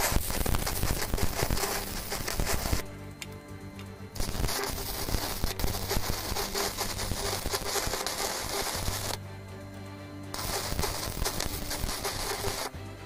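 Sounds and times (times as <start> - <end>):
welding arc crackling: 0.0 - 3.0, 4.2 - 9.2, 10.3 - 12.7
background music: 0.0 - 13.0.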